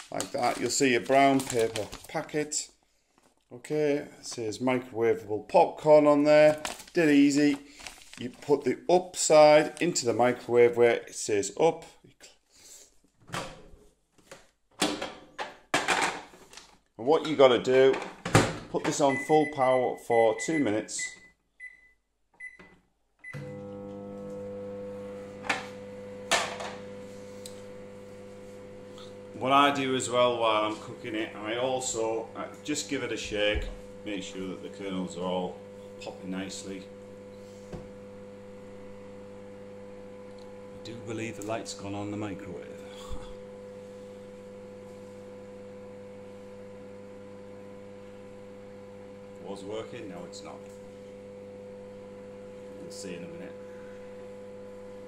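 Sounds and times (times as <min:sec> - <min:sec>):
microwave control panel beeping: 0:19.0 - 0:23.6
microwave oven humming: 0:23.2 - 0:55.0.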